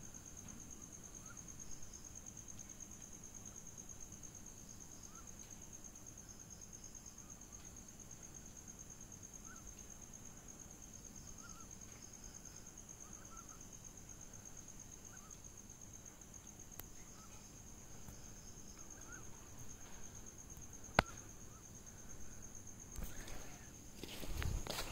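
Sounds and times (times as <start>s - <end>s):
crickets trilling: 0.0s - 24.9s
rustling steps: 22.9s - 24.9s.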